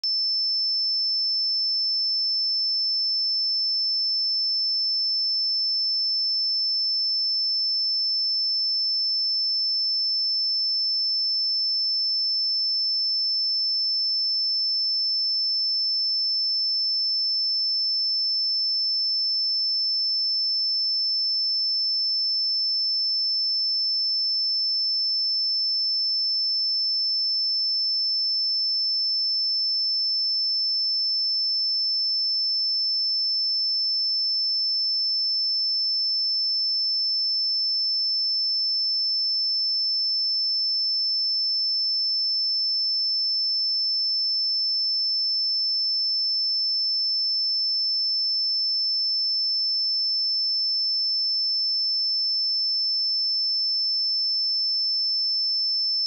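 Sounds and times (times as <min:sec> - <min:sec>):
high-pitched sine test tone: 0:00.0 - 0:03.9.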